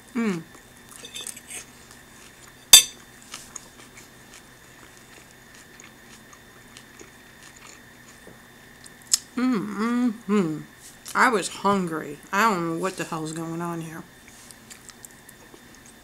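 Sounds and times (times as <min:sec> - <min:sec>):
faint steady hum: 0:00.0 - 0:16.0
chewing: 0:00.5 - 0:02.6, 0:03.2 - 0:09.2, 0:14.2 - 0:16.0.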